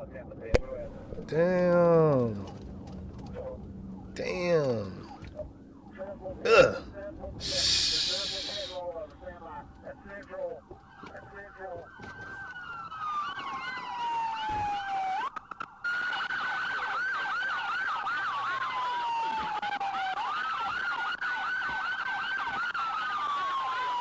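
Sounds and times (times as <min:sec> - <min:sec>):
police siren wailing: 0:00.6 - 0:24.0
rapid yelping siren: 0:07.5 - 0:24.0.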